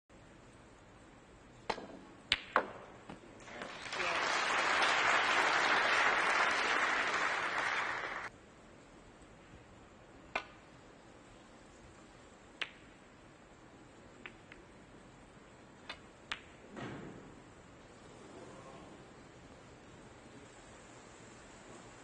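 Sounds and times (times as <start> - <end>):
snooker balls clicking: 1.5 - 3.2, 12.5 - 13.0, 14.1 - 14.7, 15.7 - 16.7
soft murmur: 17.9 - 19.4.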